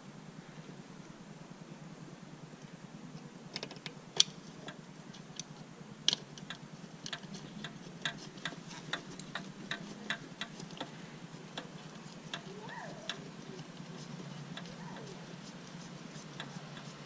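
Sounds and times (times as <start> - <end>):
small screws and parts clicking: 3.5 - 17.0.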